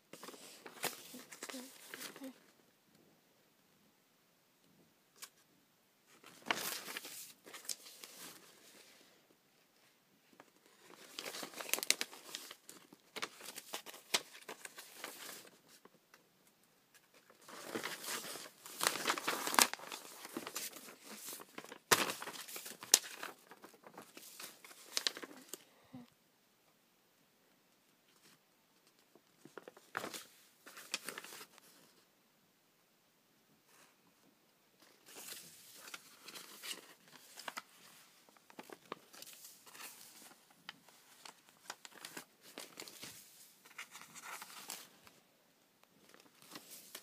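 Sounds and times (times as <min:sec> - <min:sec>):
paper rustling and crinkling: 0:00.1 - 0:02.5, 0:06.1 - 0:09.0, 0:10.3 - 0:16.0, 0:16.9 - 0:25.6, 0:28.1 - 0:32.0, 0:34.8 - 0:45.2, 0:46.0 - 0:47.0.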